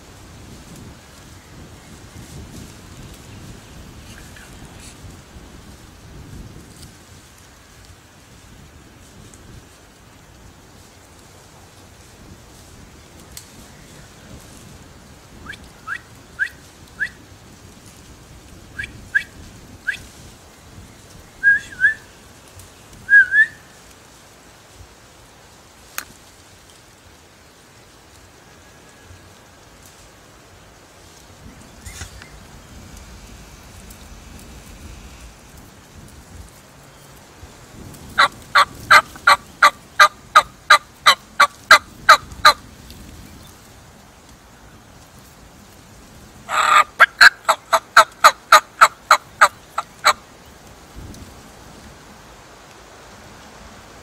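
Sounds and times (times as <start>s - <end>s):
bird whistling: 15.4s - 17.2s, 21.4s - 22.1s, 23.1s - 23.6s
turkey yelping: 23.1s - 23.6s, 38.2s - 42.6s, 46.5s - 50.2s.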